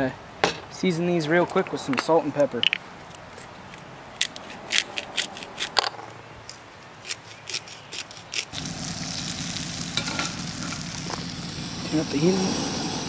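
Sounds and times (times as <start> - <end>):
fish sizzling in a pan: 8.6 - 13.0.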